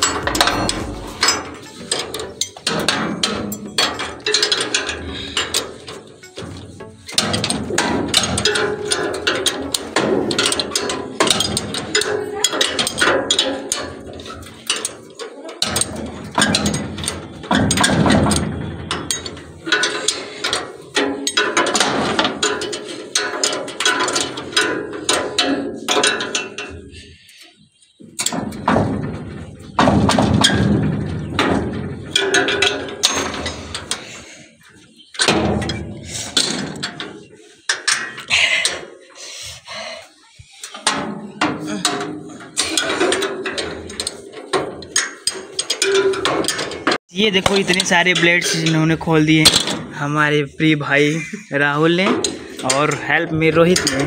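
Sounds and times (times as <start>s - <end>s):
metal tools clinking: 0.0s - 21.8s, 53.6s - 54.0s.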